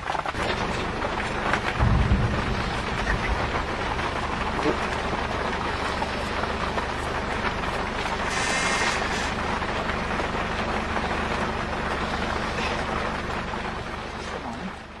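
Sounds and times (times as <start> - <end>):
noisy wash: 0.0 - 15.0
vehicle engine idling: 0.0 - 15.0
brief hiss: 8.3 - 9.3.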